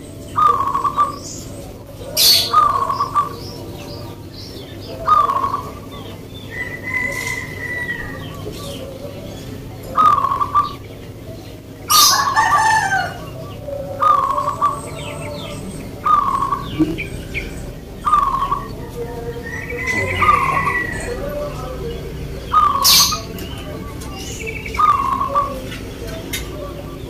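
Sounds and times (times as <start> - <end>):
doves cooing: 0.0 - 27.0
small birds chirping: 0.0 - 27.0
rooster crowing: 6.5 - 8.8, 11.9 - 14.7, 19.0 - 21.8.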